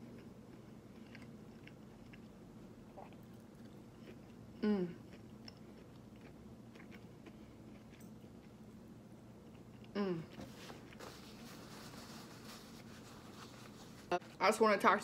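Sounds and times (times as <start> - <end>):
chewing food: 0.0 - 10.0
person humming mm: 4.6 - 5.0, 9.9 - 10.4.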